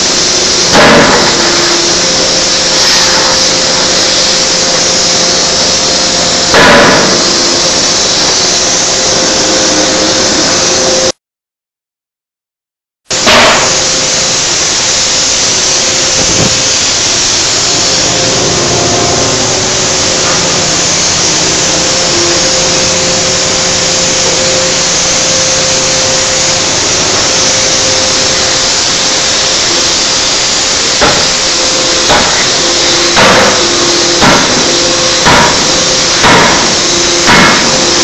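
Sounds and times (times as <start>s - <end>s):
machinery rushing hiss: 0.0s - 11.2s, 13.1s - 38.0s
sharp hammer blow: 0.7s - 4.5s, 6.4s - 7.7s, 13.1s - 14.0s, 30.8s - 38.0s.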